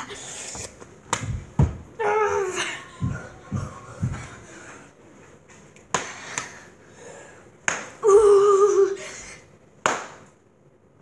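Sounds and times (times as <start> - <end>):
boy whining: 2.0 - 3.7, 8.0 - 9.4.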